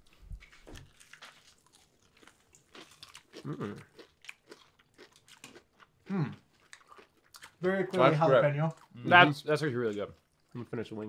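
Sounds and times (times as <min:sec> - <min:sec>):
crunching fried chicken: 0:00.4 - 0:07.7.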